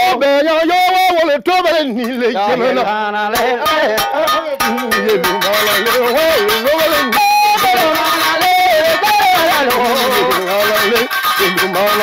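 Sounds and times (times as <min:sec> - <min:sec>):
person singing: 0:00.0 - 0:12.0
balafon notes: 0:02.5 - 0:12.0.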